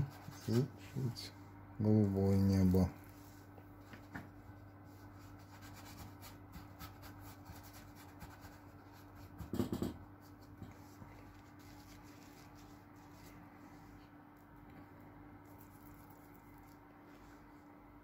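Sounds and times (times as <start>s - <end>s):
brush strokes on canvas: 3.0s - 6.4s, 10.7s - 14.1s, 15.6s - 17.7s.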